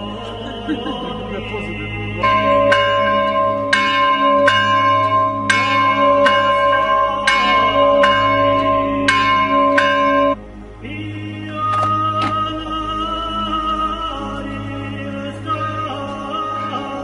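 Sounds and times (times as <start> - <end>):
bell striking and ringing: 2.2 - 10.4.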